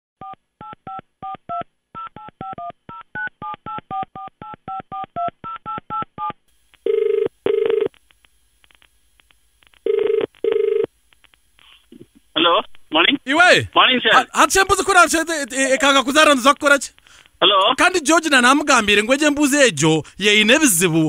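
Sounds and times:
phone ringing tone: 0:00.2 - 0:07.9, 0:09.8 - 0:10.9.

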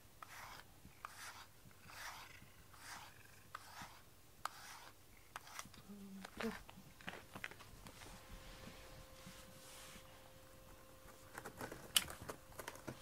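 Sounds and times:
strokes through cat fur: 0:07.9 - 0:10.2.

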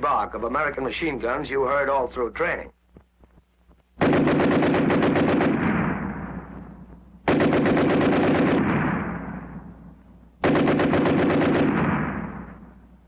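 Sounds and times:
machine gun automatic fire: 0:04.0 - 0:06.5, 0:07.2 - 0:09.7, 0:10.4 - 0:12.7.

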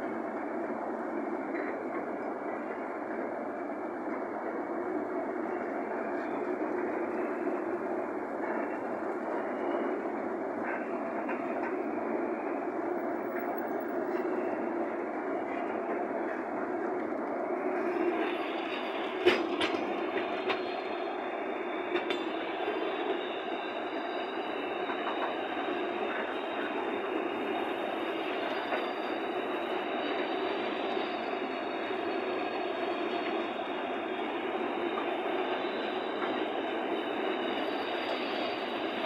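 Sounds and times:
train wheels rumbling on rails: 0:00.0 - 0:39.0.

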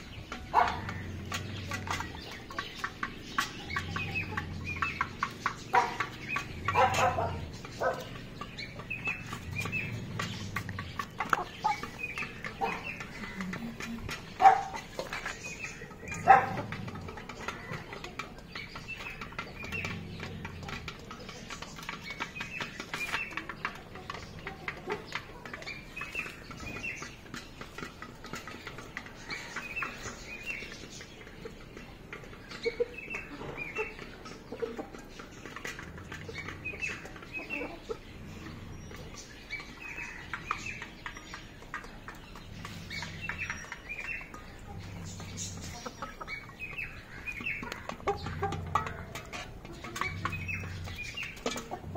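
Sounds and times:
beaks pecking steel bowls: 0:00.0 - 0:51.9
chickens chirping: 0:00.0 - 0:51.9.

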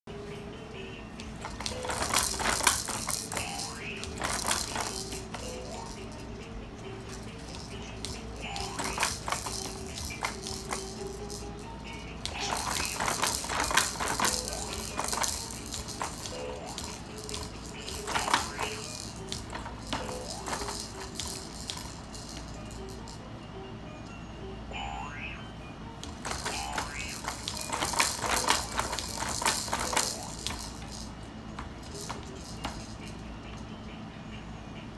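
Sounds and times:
plastic toys rattling and clacking: 0:01.3 - 0:23.2, 0:26.0 - 0:33.7.

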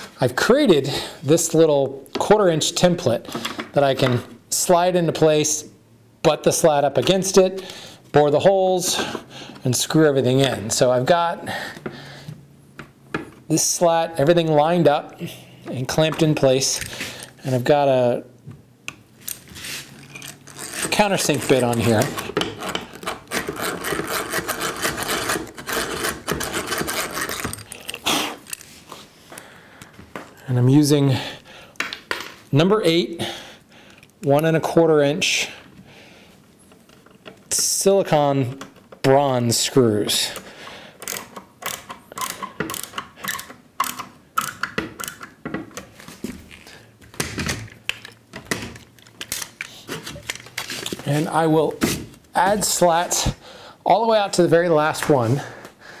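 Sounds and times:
screwdriver clicking and creaking: 0:19.2 - 0:28.7, 0:40.4 - 0:45.9, 0:47.7 - 0:51.0
hand drill cutting wood: 0:20.5 - 0:27.7.

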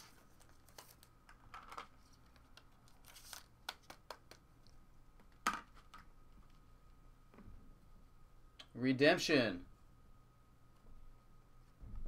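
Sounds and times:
card packaging rustling: 0:00.0 - 0:04.4.

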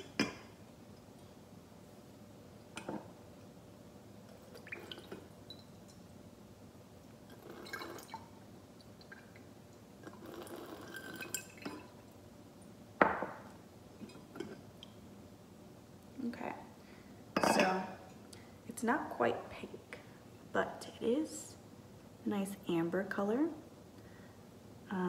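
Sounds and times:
liquid trickling into glass: 0:07.3 - 0:08.3, 0:10.0 - 0:12.0.

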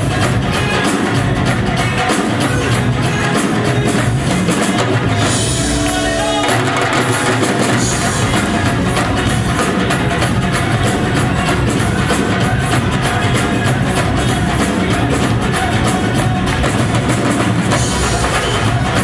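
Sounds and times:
electric guitar and bass: 0:00.0 - 0:06.6, 0:07.5 - 0:19.0
dhol drums beaten with sticks: 0:00.0 - 0:19.0
rock drum kit: 0:00.0 - 0:19.0.

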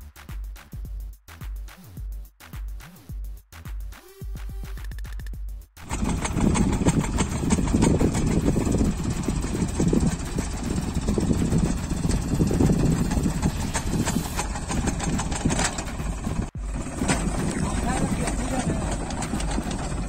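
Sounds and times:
earth auger clattering: 0:05.8 - 0:20.0
tractor engine running: 0:05.8 - 0:20.0.

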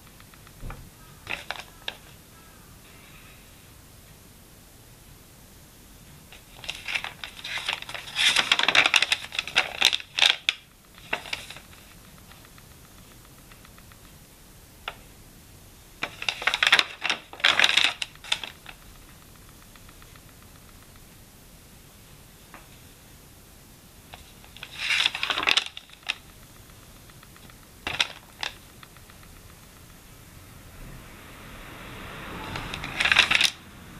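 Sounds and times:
notebook pages turning: 0:01.2 - 0:02.2, 0:06.3 - 0:12.4, 0:16.0 - 0:18.8, 0:24.2 - 0:26.2, 0:27.8 - 0:29.3, 0:32.5 - 0:33.6.

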